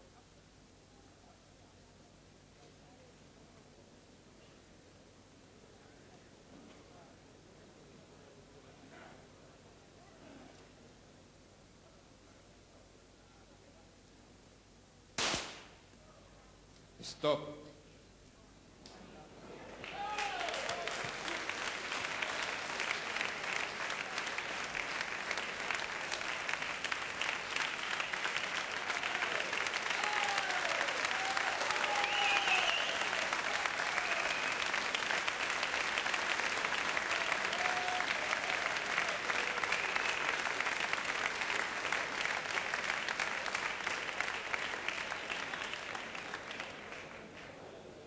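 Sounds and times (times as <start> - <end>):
crowd applauding: 19.6 - 48.0
people shouting: 19.9 - 20.9, 30.0 - 32.9.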